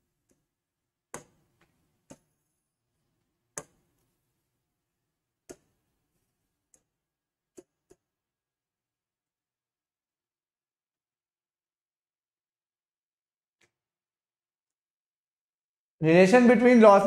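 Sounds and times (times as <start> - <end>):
stylus tapping on screen: 1.1 - 2.4, 3.5 - 4.0, 5.4 - 5.8.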